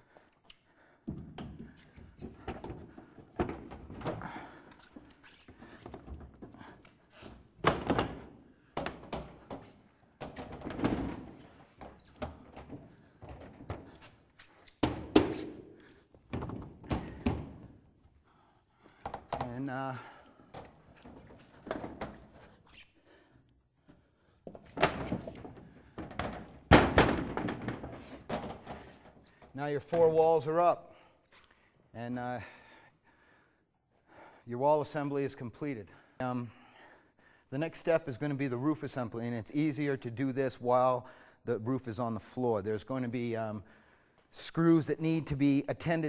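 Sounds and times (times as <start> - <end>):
wooden panel thuds and knocks: 24.8 - 29.0.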